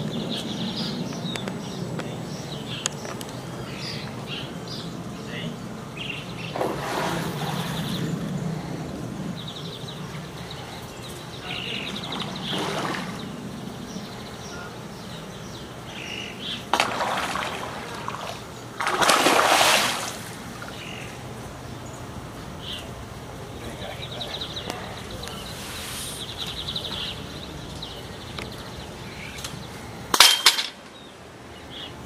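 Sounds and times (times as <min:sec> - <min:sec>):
fish splashing in water: 0:12.0 - 0:13.3, 0:16.7 - 0:20.8.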